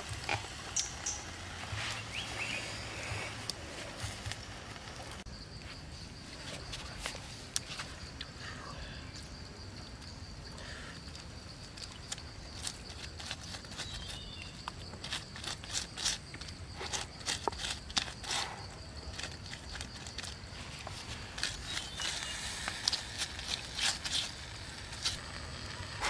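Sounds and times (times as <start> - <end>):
roasting chicken crackling: 0.0 - 5.3, 10.5 - 26.0
steady high hum: 24.6 - 26.0.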